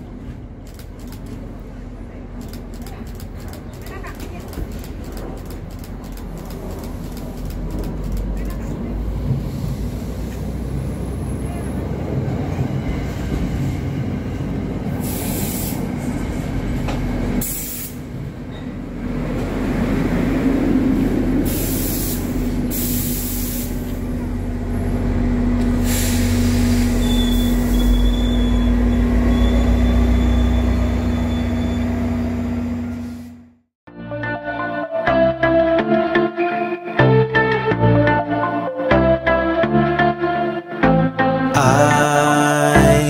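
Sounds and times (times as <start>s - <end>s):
train wheel rumble: 0.0s - 33.5s
diesel locomotive drone: 0.0s - 43.0s
short bursts of hissing: 17.4s - 18.0s, 21.5s - 23.8s
high wheel squeal: 26.6s - 32.3s.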